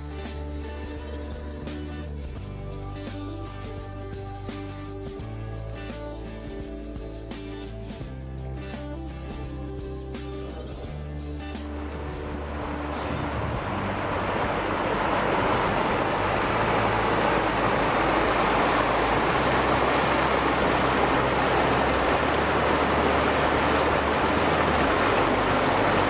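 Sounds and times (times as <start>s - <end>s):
stream rushing over boulders: 11.6s - 26.0s.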